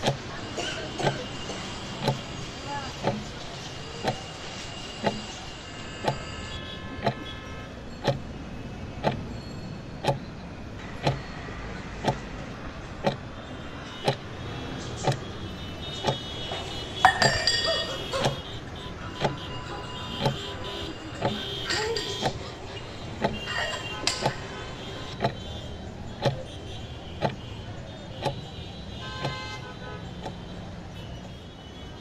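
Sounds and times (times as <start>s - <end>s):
clock ticking: 2.0s - 2.3s, 3.0s - 3.4s, 9.0s - 9.3s, 10.0s - 10.3s, 11.0s - 11.4s, 12.0s - 13.4s, 21.1s - 25.4s
clinking clatter: 17.0s - 18.4s, 21.2s - 22.6s, 23.4s - 24.6s.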